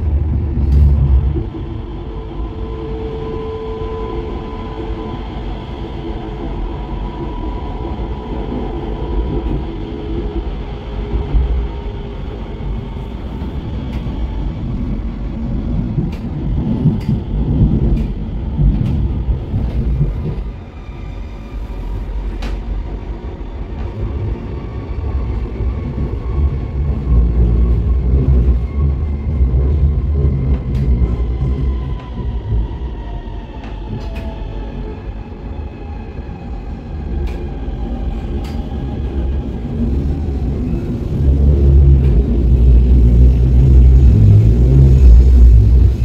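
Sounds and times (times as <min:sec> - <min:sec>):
tram low rumble: 0:00.0 - 0:46.0.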